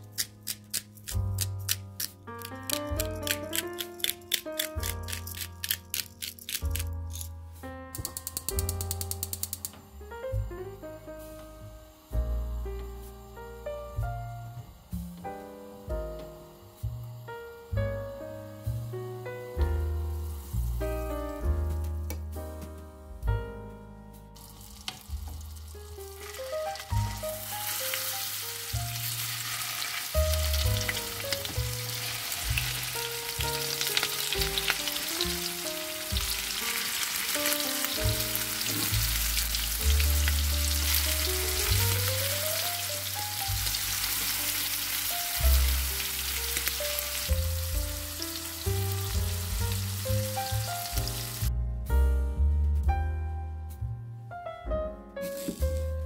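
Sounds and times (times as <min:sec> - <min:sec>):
background music: 0:00.0 - 0:56.0
chicken sizzling in a frying pan: 0:15.8 - 0:21.0, 0:24.4 - 0:51.5.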